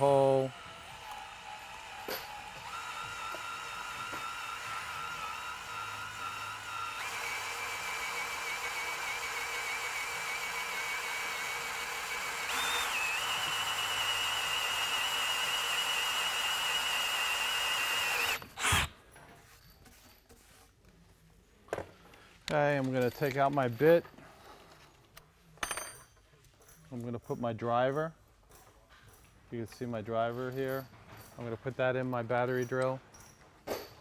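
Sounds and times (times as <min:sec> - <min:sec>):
drill bit cutting wood: 0:00.0 - 0:18.9
drill motor whine: 0:00.0 - 0:18.9.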